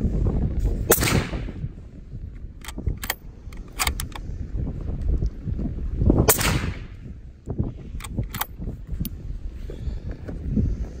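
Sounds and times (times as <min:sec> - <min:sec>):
suppressed rifle shots: 0:00.9 - 0:01.6, 0:06.3 - 0:07.0
sharp clicks: 0:02.4 - 0:04.3, 0:08.0 - 0:09.2.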